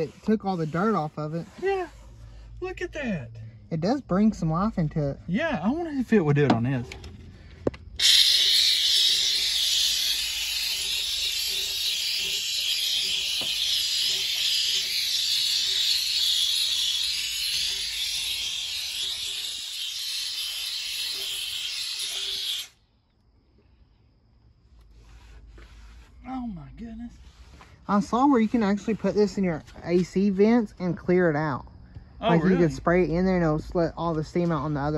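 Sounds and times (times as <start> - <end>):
steam cleaner hissing: 8.0 - 22.8.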